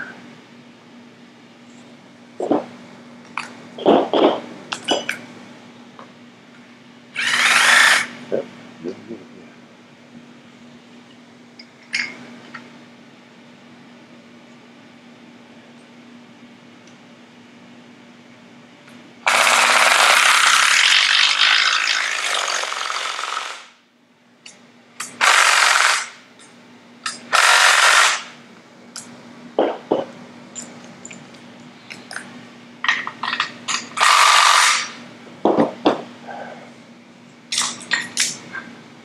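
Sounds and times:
impact driver running: 7.2 - 8.2, 19.3 - 23.8, 25.2 - 26.2, 27.3 - 28.4, 34.0 - 35.0.

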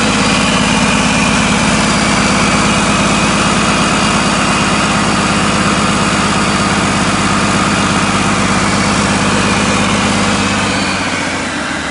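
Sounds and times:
diesel truck engine idling: 0.0 - 11.9.

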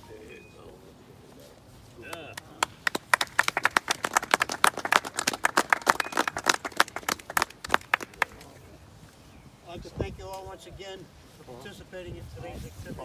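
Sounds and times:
people applauding: 2.0 - 8.6.

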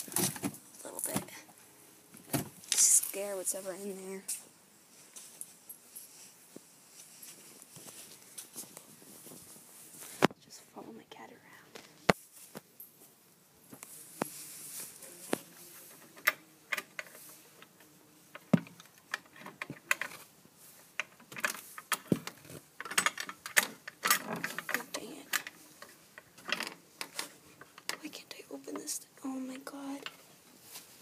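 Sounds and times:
rustling scrapes: 4.9 - 10.3, 13.9 - 16.2.

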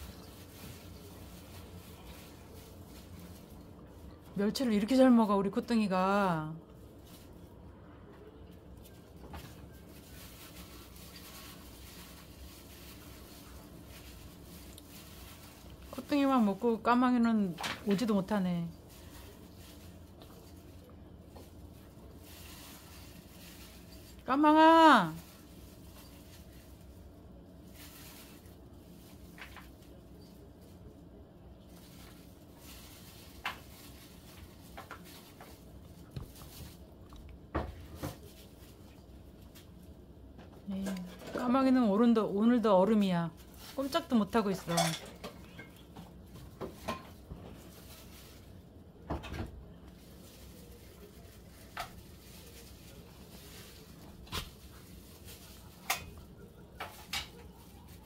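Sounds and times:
cat chewing crunchy food: 9.9 - 15.9.

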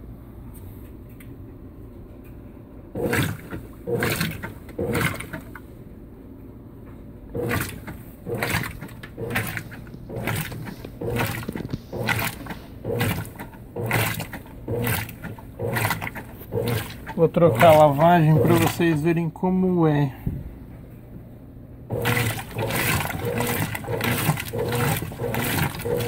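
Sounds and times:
washing machine agitator swishing: 3.0 - 5.6, 7.3 - 19.2, 21.9 - 26.0.

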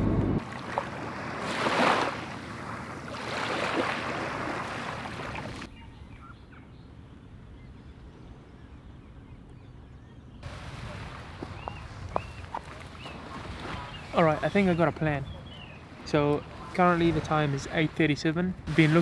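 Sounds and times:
waves washing onto shore: 0.4 - 5.7, 10.4 - 15.2, 15.8 - 19.0
quiet outdoor background: 5.6 - 19.0.

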